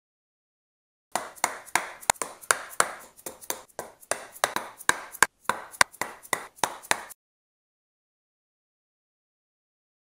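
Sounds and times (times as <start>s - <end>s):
sharp taps on wooden block: 1.2s - 7.2s.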